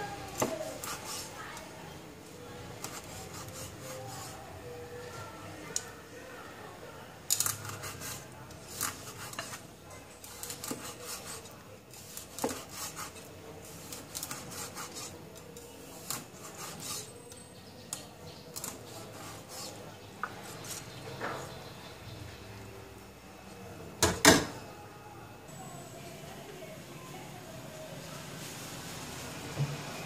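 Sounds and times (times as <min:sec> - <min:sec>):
blade rubbing through fish flesh: 0:00.6 - 0:01.4, 0:02.8 - 0:04.5, 0:07.5 - 0:15.2, 0:15.8 - 0:17.1, 0:18.6 - 0:19.8.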